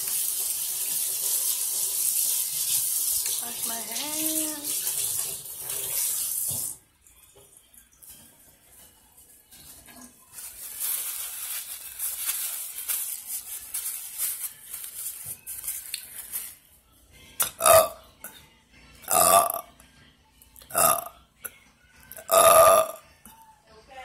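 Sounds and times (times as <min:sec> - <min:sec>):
woman burping: 0:17.6 - 0:18.0, 0:19.1 - 0:19.7, 0:20.8 - 0:21.1, 0:22.2 - 0:23.0.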